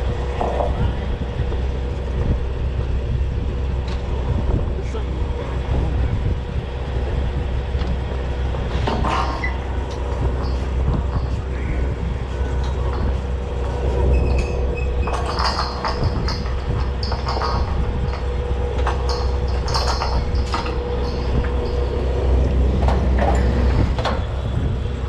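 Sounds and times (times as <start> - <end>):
drilling rig machinery rumble: 0.0 - 25.0
metallic clanks of drill pipe: 7.8 - 24.7.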